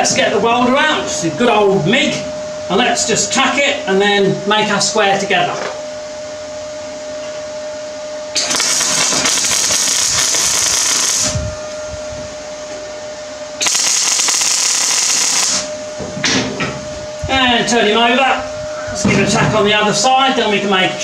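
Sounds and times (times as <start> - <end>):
steady hum: 0.0 - 21.0
welder crackling sizzle: 8.3 - 11.5, 13.6 - 15.8.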